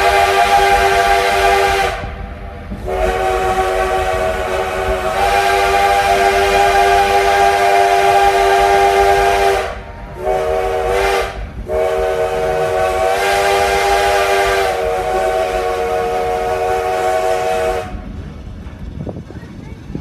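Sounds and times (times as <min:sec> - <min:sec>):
steam locomotive chime whistle: 0:00.0 - 0:02.1, 0:02.8 - 0:18.1.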